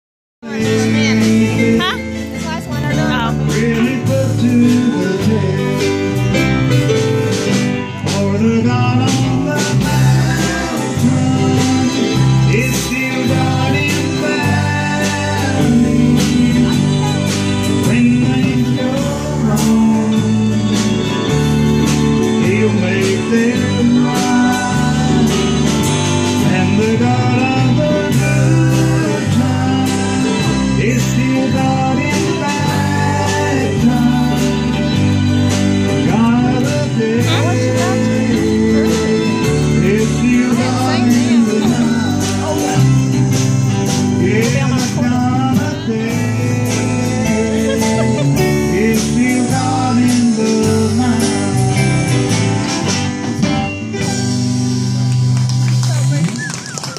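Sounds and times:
person singing lead vocal: 0.4s - 53.0s
live band playing: 0.4s - 56.9s.

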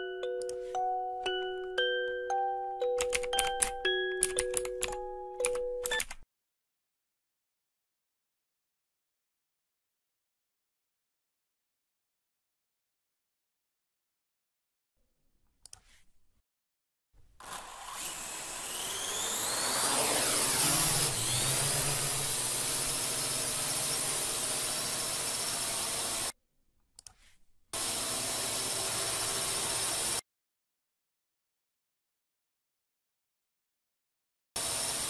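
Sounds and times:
drone propellers whining: 17.4s - 26.3s.

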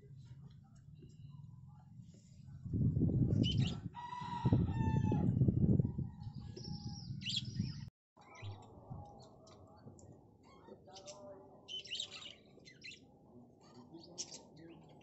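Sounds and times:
rooster crowing: 3.9s - 5.4s.

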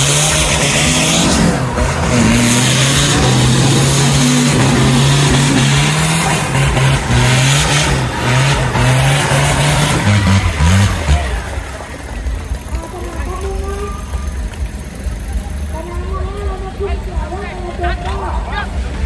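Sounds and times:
truck engine revving hard: 0.0s - 15.8s.

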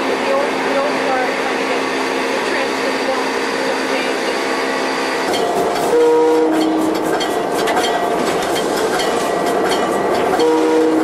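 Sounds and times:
locomotive bell clanging: 5.3s - 11.0s
locomotive air horn: 5.8s - 7.1s, 10.4s - 11.0s.

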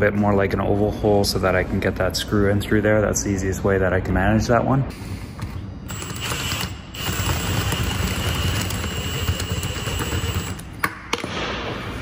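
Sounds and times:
cordless drill grinding metal: 5.9s - 10.6s.

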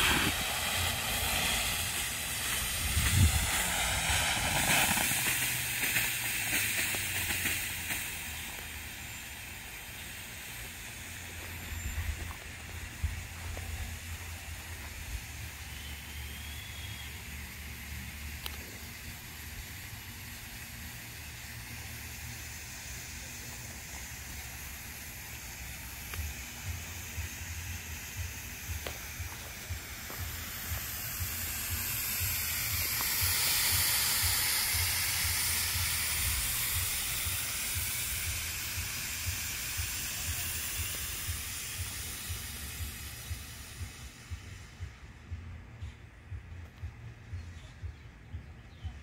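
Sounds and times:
smoke fireworks hissing: 0.0s - 47.8s.

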